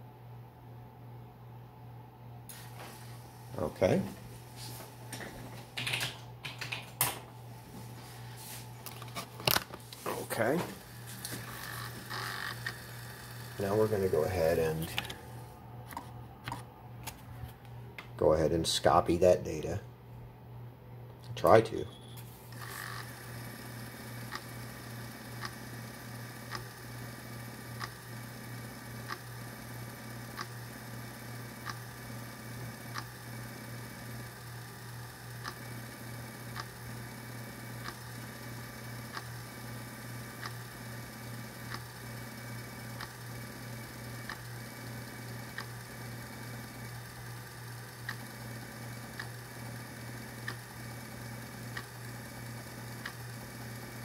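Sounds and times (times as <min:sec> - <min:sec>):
floppy drive motor hum: 0:02.4 - 0:18.2, 0:21.4 - 0:54.0.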